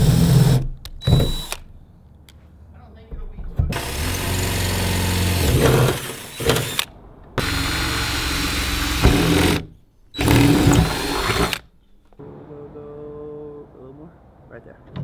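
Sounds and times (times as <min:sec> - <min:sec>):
cordless drill drilling: 0:00.0 - 0:01.6, 0:03.8 - 0:11.6.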